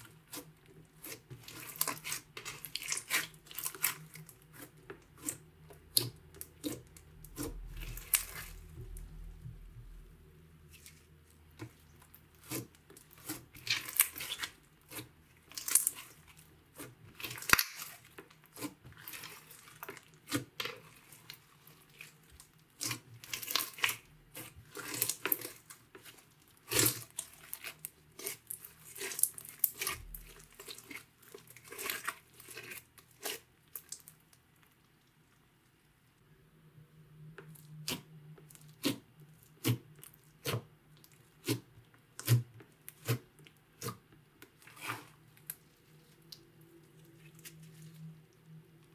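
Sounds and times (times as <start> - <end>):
slime crackling and popping: 12.4 - 21.4.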